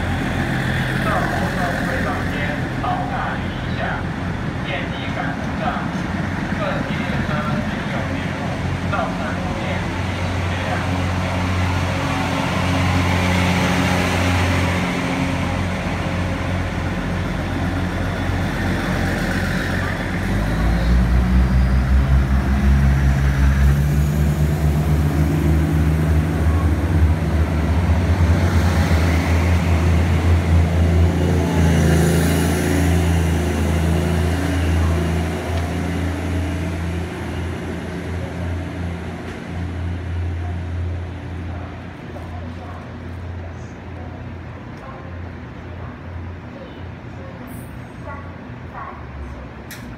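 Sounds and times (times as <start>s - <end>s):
diesel train engine droning: 0.0s - 49.9s.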